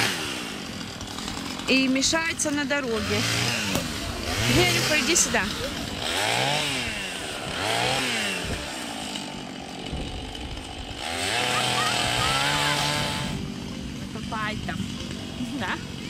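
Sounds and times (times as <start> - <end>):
chainsaw revving: 0.0 - 16.0.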